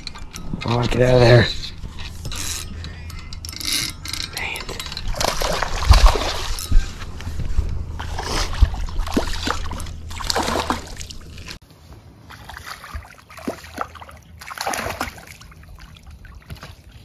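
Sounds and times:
fish thrashing and splashing: 5.1 - 6.7, 8.0 - 11.6, 12.4 - 16.9.

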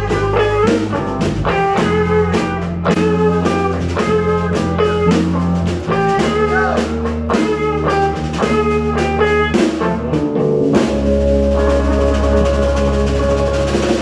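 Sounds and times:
electric guitar melodic line: 0.0 - 14.0
live band playing: 0.0 - 14.0.

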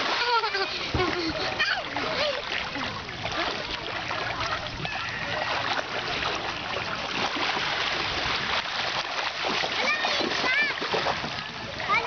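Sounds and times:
shallow water splashing: 0.0 - 12.0.

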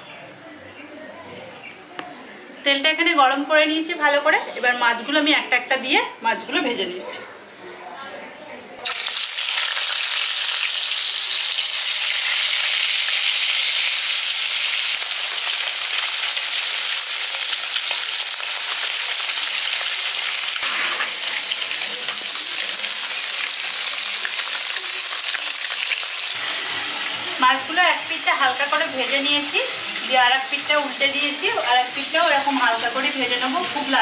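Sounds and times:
fish sizzling in hot oil: 8.8 - 34.0.

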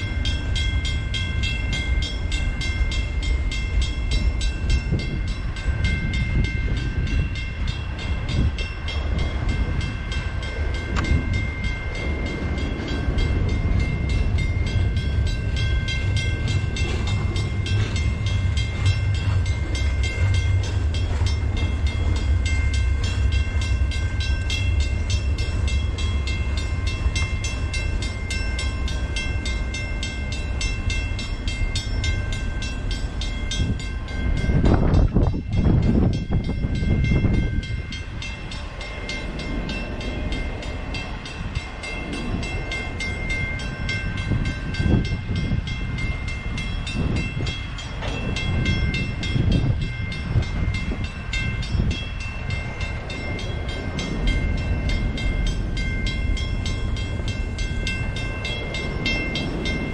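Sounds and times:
crossing bell ringing: 0.0 - 59.9
train rumble and rail clatter: 0.0 - 59.9.

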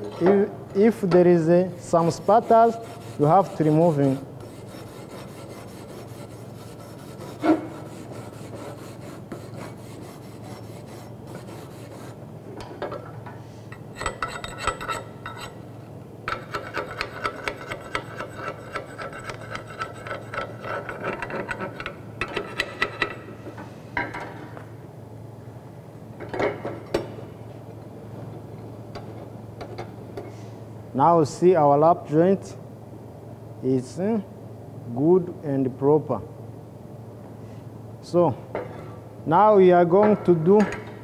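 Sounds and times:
wire brush scrubbing steel: 2.0 - 12.2
hand tool scraping metal plate: 2.1 - 12.2, 16.4 - 22.7.

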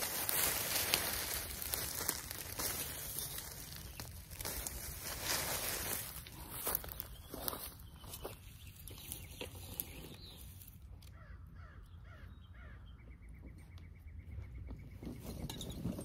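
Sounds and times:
footsteps on dry leaves and gravel: 0.0 - 11.4
crow cawing: 11.1 - 12.8.

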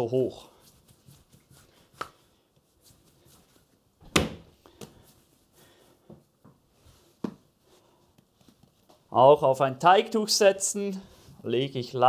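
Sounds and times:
hands patting dough on wood: 0.4 - 5.3
dough thump: 4.0 - 5.0.

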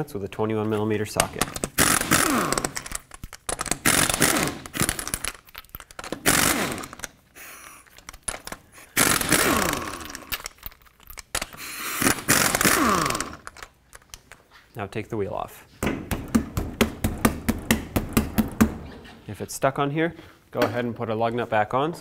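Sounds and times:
impact wrench bursts: 1.2 - 5.4, 6.0 - 7.1, 8.2 - 10.5, 11.4 - 13.6.

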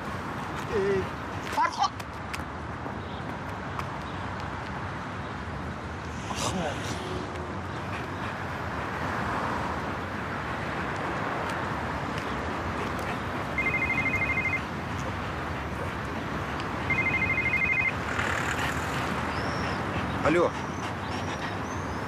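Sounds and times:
outdoor background noise: 0.0 - 22.0
mobile phone ringing: 13.6 - 14.6, 16.9 - 18.0.

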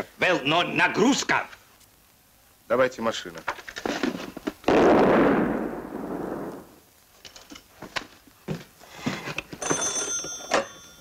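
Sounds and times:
loud blast rumble: 4.7 - 6.8
telephone bell ringing: 9.6 - 11.0.

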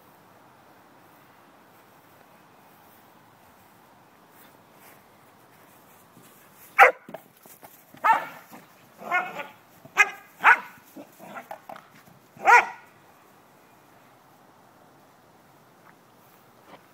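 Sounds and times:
dog barking: 6.8 - 7.1, 8.0 - 8.4, 9.0 - 11.5, 12.4 - 12.9.

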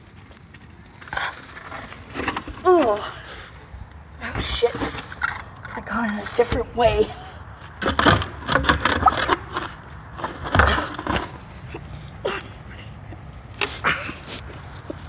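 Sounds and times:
cracks knocks and scrapes: 4.3 - 6.7, 7.7 - 11.8.

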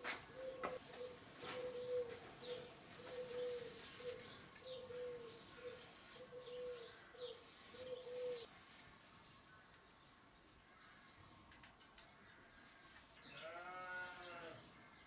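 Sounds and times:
dove cooing: 0.0 - 8.5.

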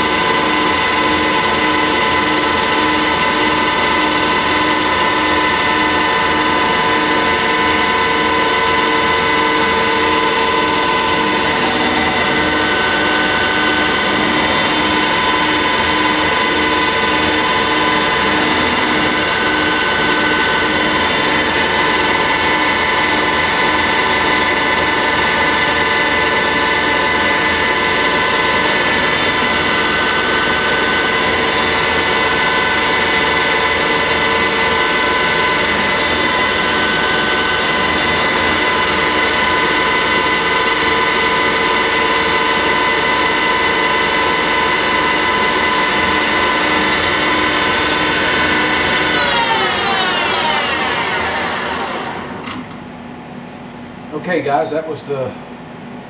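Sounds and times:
tools cutting metal: 0.0 - 52.7
lathe spindle whine: 0.0 - 53.3.

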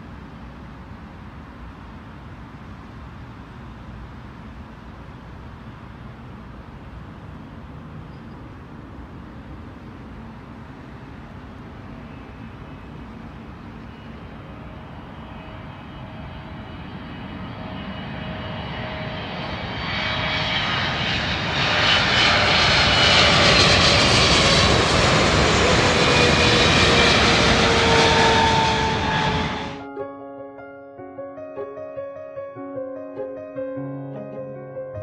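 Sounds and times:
jet engine whine: 0.0 - 29.9
jet airliner roar: 7.3 - 29.9.

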